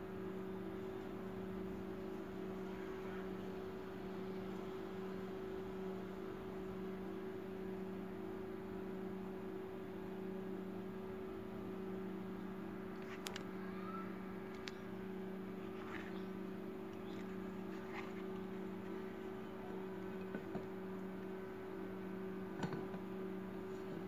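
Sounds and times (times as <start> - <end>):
low electrical hum: 0.0 - 24.0
faint clicks: 13.0 - 13.5, 14.5 - 14.9.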